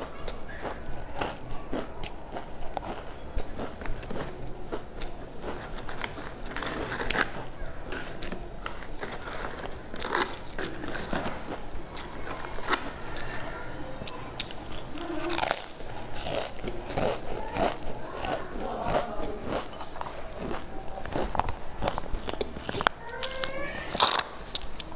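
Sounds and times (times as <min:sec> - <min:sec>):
chips crunching: 0:00.0 - 0:24.9.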